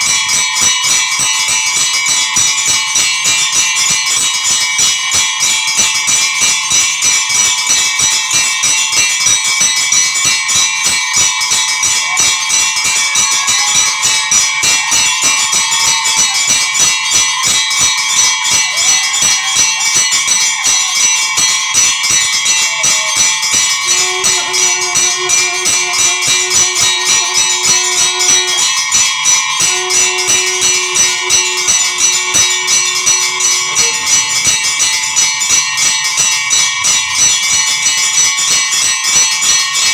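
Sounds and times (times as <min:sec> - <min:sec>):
temple bells ringing: 0:00.0 - 0:39.9
low held tone: 0:21.3 - 0:36.7.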